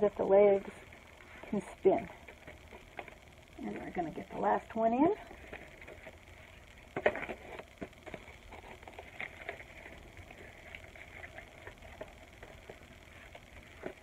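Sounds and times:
cardboard rustling: 0:05.3 - 0:14.0.

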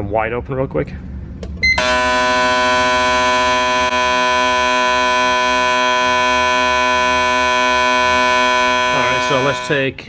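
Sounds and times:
fuel injectors buzzing: 0:01.8 - 0:09.8.

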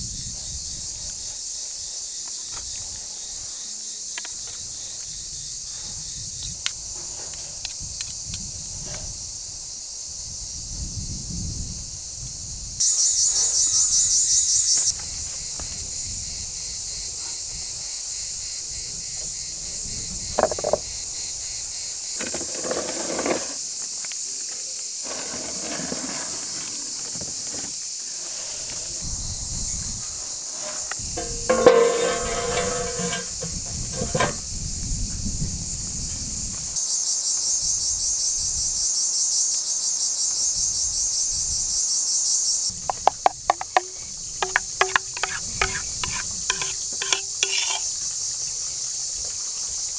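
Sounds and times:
crickets chirping: 0:00.0 - 0:49.9
clay pot scraping on stone: 0:22.2 - 0:23.6, 0:25.0 - 0:26.9, 0:28.1 - 0:28.9, 0:30.4 - 0:34.4, 0:42.9 - 0:47.9
oven door scraping: 0:22.2 - 0:23.6, 0:25.0 - 0:29.0, 0:30.4 - 0:34.4.

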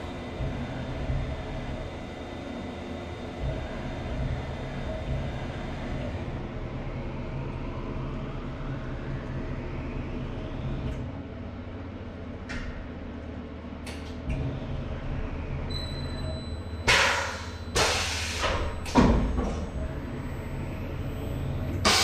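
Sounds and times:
milling machine motor hum: 0:00.0 - 0:12.4.

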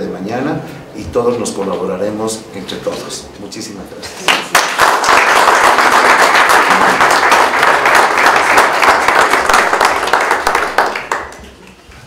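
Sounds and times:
audience applauding: 0:04.2 - 0:11.8.

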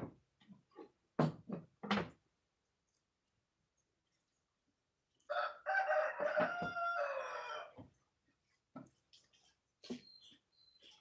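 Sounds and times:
rooster crowing: 0:05.3 - 0:07.8.

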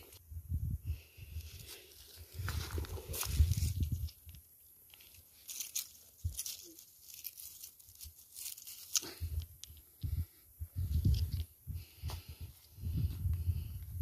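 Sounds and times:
dry leaves crackling and crunching: 0:01.5 - 0:09.2.

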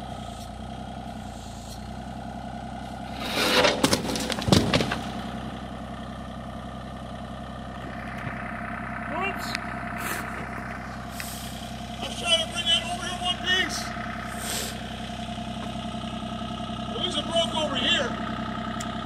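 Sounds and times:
excavator diesel engine running: 0:00.0 - 0:19.0
cinder blocks crashing down: 0:03.2 - 0:05.3.

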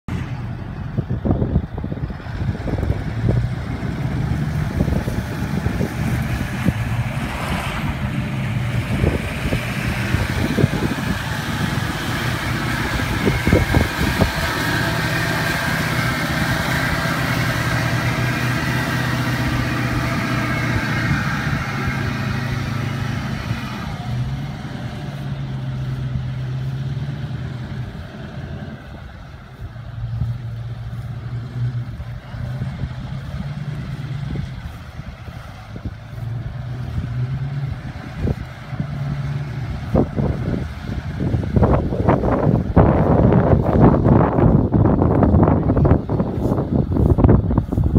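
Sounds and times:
pickup engine running under load: 0:00.0 - 0:47.9
tyres spinning in mud: 0:02.0 - 0:47.9.

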